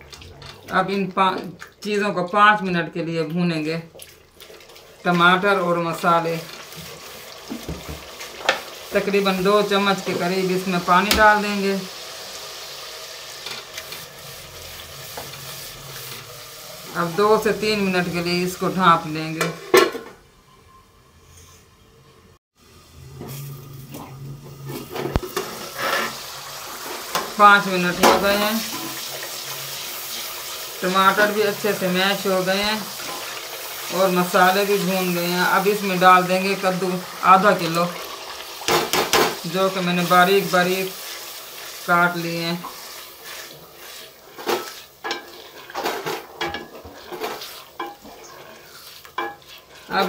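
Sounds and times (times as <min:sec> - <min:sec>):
faint sizzling: 0:04.8 - 0:50.0
spoon scraping metal pot: 0:24.8 - 0:26.3, 0:42.6 - 0:50.0.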